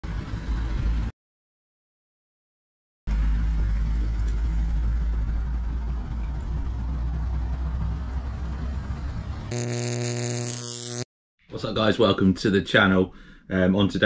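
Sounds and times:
buzzing synthesised tone: 9.5 - 11.1.

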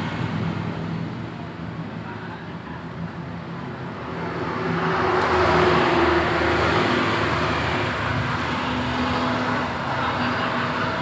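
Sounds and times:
vehicle passing by: 3.9 - 11.0.

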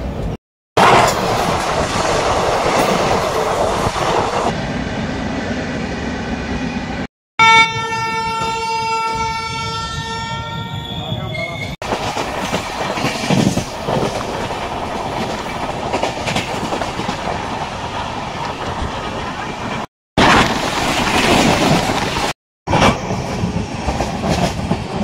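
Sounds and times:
passing train: 0.0 - 25.0
train wheels clattering over rail joints: 11.8 - 17.4.

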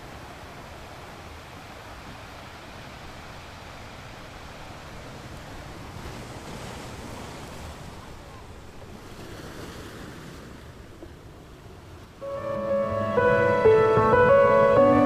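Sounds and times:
music with long held notes: 12.2 - 15.0.

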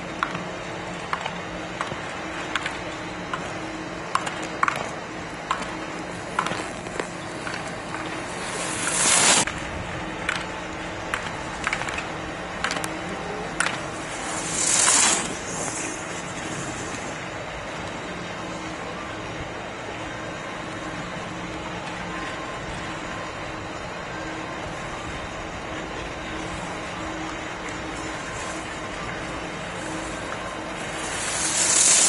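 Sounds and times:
skis scraping on hard snow: 6.3 - 9.5, 13.8 - 17.2, 29.7 - 32.0.

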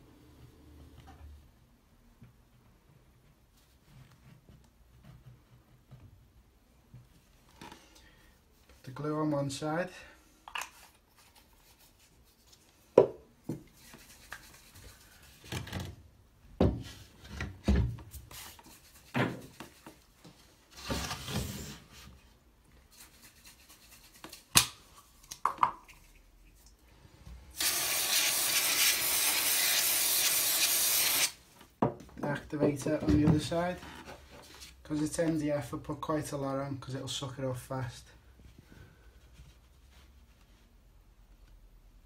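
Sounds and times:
aerosol spray hissing: 27.6 - 31.4.

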